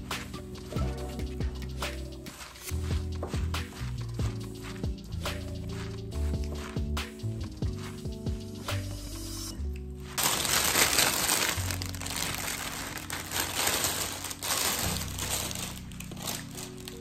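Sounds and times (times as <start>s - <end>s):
background music: 0.0s - 17.0s
plastic bag crinkling: 10.1s - 17.0s.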